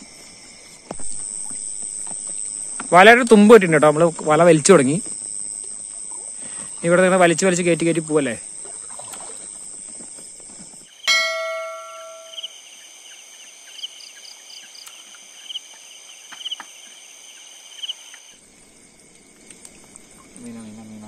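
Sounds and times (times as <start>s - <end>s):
night insects trilling: 0.0s - 21.0s
bell-like chime: 11.1s - 12.5s.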